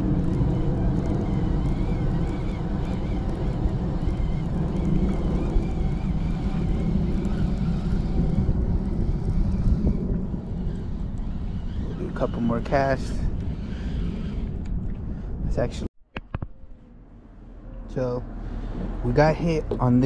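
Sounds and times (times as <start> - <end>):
fishing reel whirring: 0.0 - 15.0
wind rumble on microphone: 0.0 - 20.0.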